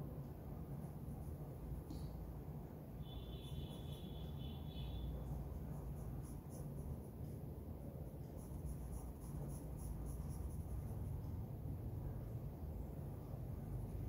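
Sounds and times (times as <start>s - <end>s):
steady low hum: 0.0s - 14.0s
pencil scratching on paper: 3.3s - 11.4s.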